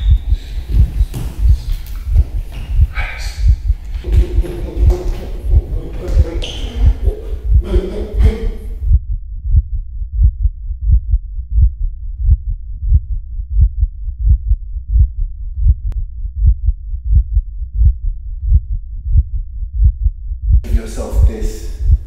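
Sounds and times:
muffled heartbeat thumping: 0:00.0 - 0:22.0.

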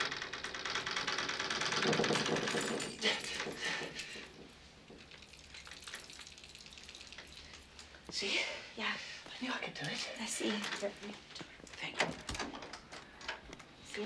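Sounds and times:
keys rattling and clinking: 0:00.6 - 0:07.9, 0:11.8 - 0:13.7.

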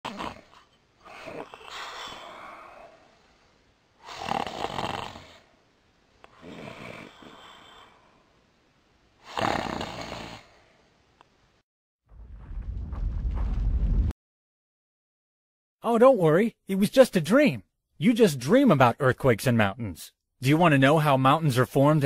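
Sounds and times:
cartoon character snoring: 0:00.0 - 0:03.0, 0:04.0 - 0:05.5, 0:06.3 - 0:08.2, 0:09.2 - 0:10.6.

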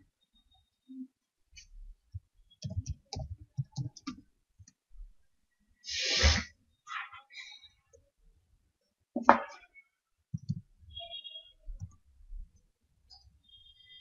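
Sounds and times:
keyboard typing: 0:02.6 - 0:04.2, 0:10.4 - 0:10.7.

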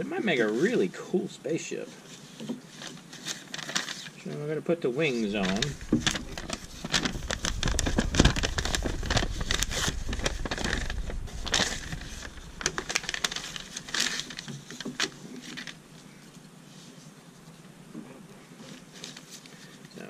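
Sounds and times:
paper booklet crinkling: 0:02.0 - 0:17.6, 0:18.5 - 0:19.9
low thumps: 0:05.8 - 0:13.4.

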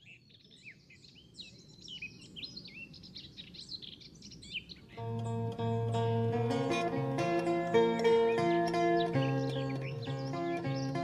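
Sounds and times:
small birds chirping: 0:00.0 - 0:11.0
plucked-string music: 0:05.0 - 0:11.0.

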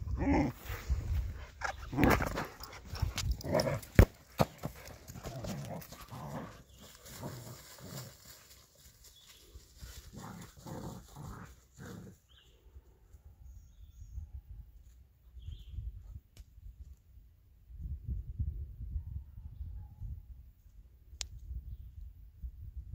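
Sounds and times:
dogs play-growling: 0:00.0 - 0:08.5, 0:09.8 - 0:12.2.

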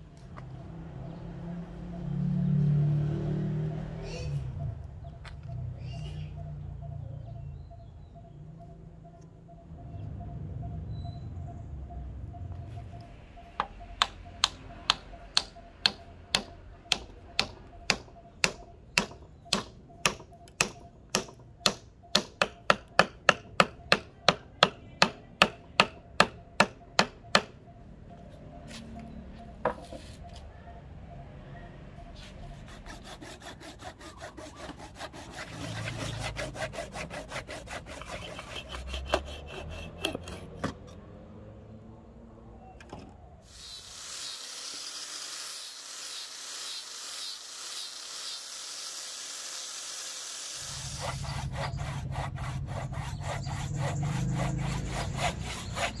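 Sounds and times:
hammer tapping wooden wedge: 0:13.6 - 0:27.6, 0:37.1 - 0:40.8
blade scraping wooden handle: 0:32.2 - 0:41.0, 0:50.6 - 0:56.0.

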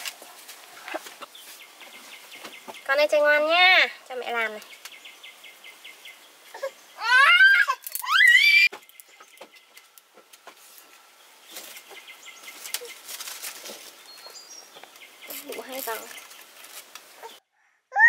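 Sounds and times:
child squealing: 0:06.5 - 0:08.7.

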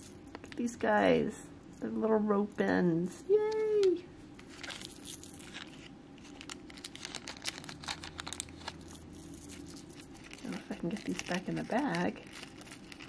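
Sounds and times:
plastic bag crinkling: 0:04.5 - 0:08.9.

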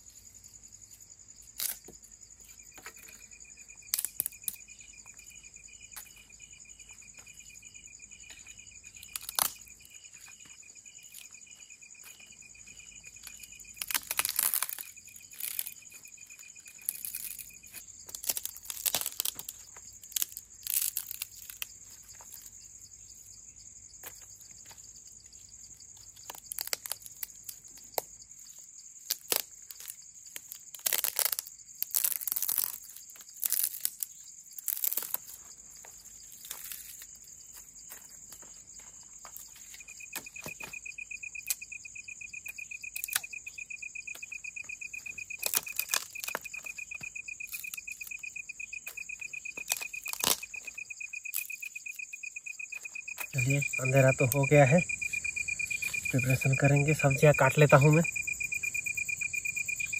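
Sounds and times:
crickets trilling high drone: 0:00.0 - 0:59.9
low pulsing cricket trill: 0:00.0 - 0:59.9
close crunches and rustles: 0:12.0 - 0:22.6, 0:24.1 - 0:40.9, 0:44.1 - 0:51.6.

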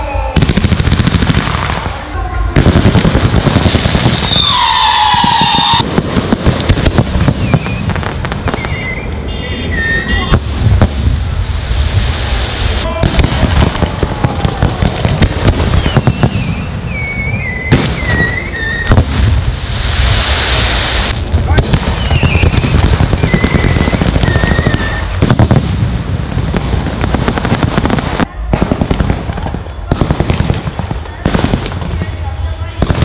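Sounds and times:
firework bangs and crackling: 0:00.0 - 0:33.0
firework whistles: 0:03.6 - 0:06.0, 0:06.8 - 0:13.7, 0:15.2 - 0:25.4.

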